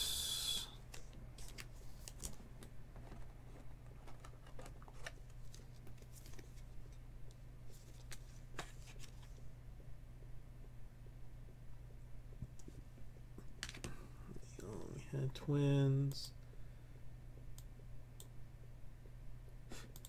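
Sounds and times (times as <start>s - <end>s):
plastic sleeve rustling: 0.9s - 6.7s.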